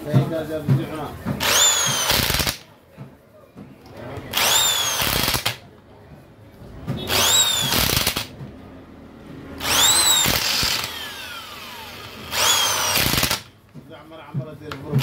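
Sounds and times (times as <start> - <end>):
electric impact wrench hammering: 1.2 - 2.7, 4.3 - 5.6, 6.9 - 8.5, 9.6 - 13.6.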